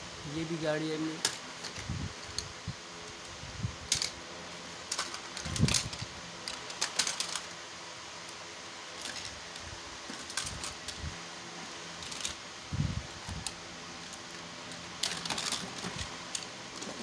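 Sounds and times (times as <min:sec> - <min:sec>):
steady background hum: 0:00.0 - 0:17.0
toy cars clattering: 0:01.2 - 0:02.5, 0:03.1 - 0:04.2, 0:04.8 - 0:07.6, 0:08.3 - 0:11.0, 0:11.7 - 0:12.4, 0:13.2 - 0:17.0.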